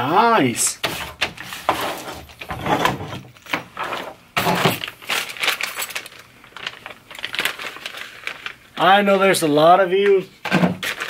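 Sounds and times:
plastic bags crinkling: 0:04.0 - 0:11.0.

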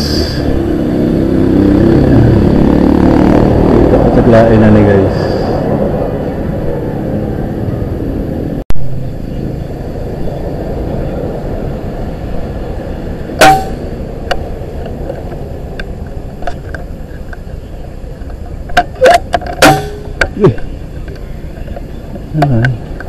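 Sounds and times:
steady low rumble: 0:00.0 - 0:23.0
loud sharp crack: 0:13.4 - 0:14.0, 0:19.6 - 0:20.4.

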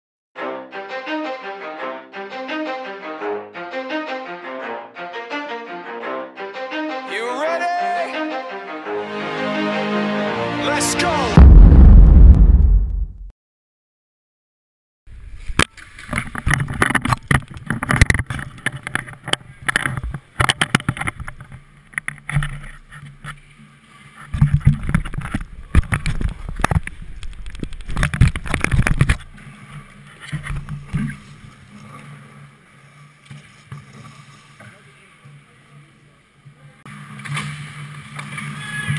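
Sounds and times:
clacks and knocks of hockey: 0:15.6 - 0:23.4.

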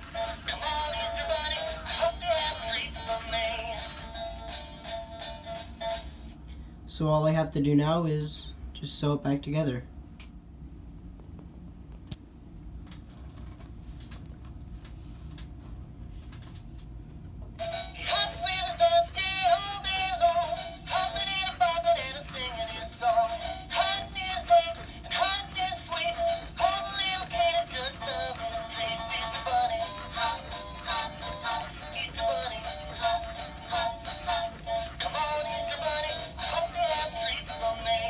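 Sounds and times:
toy playing tinny song: 0:17.6 - 0:38.0.

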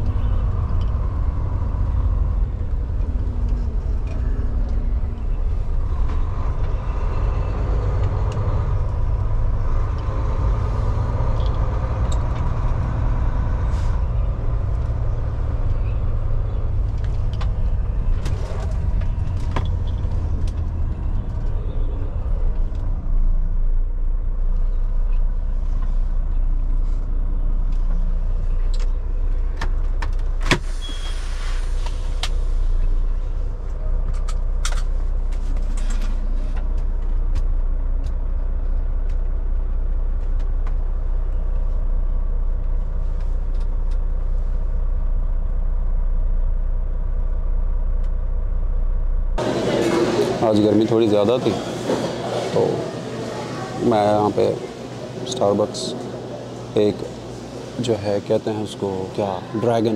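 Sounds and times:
diesel truck engine rumbling: 0:00.0 - 0:59.9
brief hiss: 0:30.6 - 0:32.7.

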